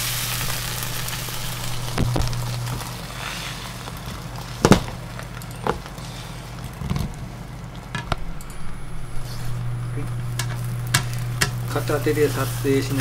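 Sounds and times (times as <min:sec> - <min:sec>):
egg sizzling in a frying pan: 0:00.0 - 0:13.0.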